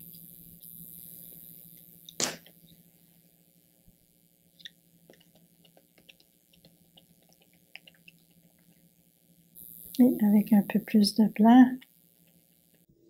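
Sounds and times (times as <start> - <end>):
low room hum: 0.0 - 13.0
wet clicks of paint mixing: 4.6 - 8.8.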